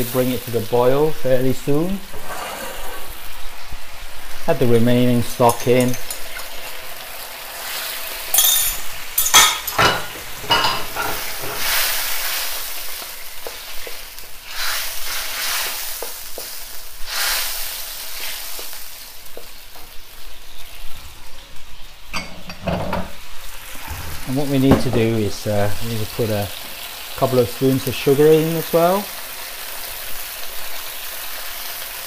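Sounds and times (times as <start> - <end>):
sauce sizzling in a wok: 0.0 - 22.2, 23.1 - 32.0.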